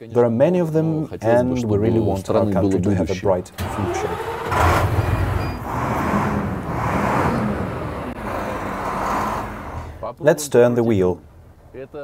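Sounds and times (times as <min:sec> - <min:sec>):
diesel truck engine humming: 0:03.4 - 0:10.2, 0:10.8 - 0:12.0.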